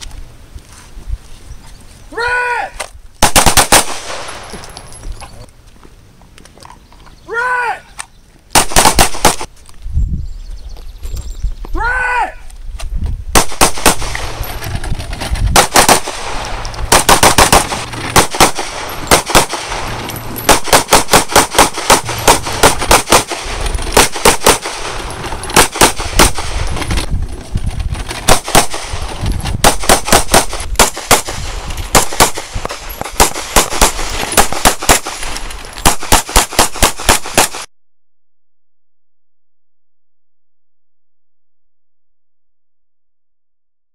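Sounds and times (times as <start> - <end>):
rapid handgun shots: 3.2 - 4.5, 8.5 - 9.5, 13.4 - 14.4, 15.6 - 26.7, 28.2 - 29.0, 29.6 - 37.7.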